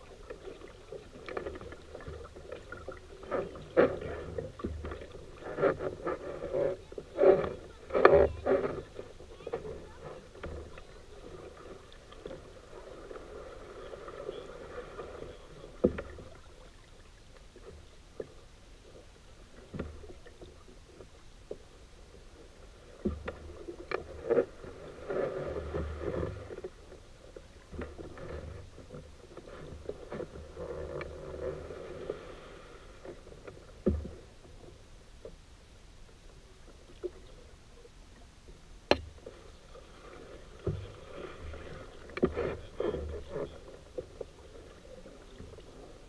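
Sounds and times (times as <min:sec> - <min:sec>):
paddle splashing through water: 0:00.0 - 0:35.4, 0:36.5 - 0:46.0.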